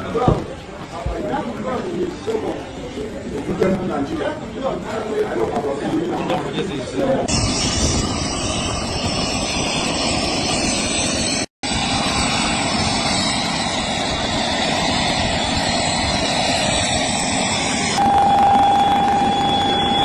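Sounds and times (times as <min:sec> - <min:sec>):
jet engines rushing: 0:06.8 - 0:20.0
high jet whine: 0:07.2 - 0:20.0.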